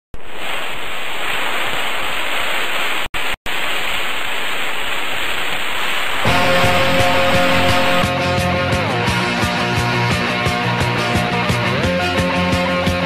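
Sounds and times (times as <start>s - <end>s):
television static hiss: 0.2s - 8.0s
rock music with guitar: 6.2s - 13.0s.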